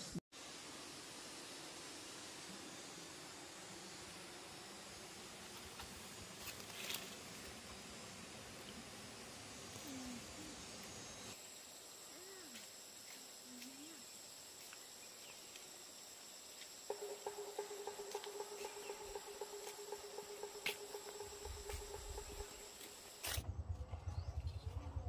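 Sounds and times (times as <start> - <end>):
high-pitched insect whine: 0.0 - 23.5
low pulsing insect trill: 0.4 - 25.0
rhythmic low thudding: 16.9 - 23.2.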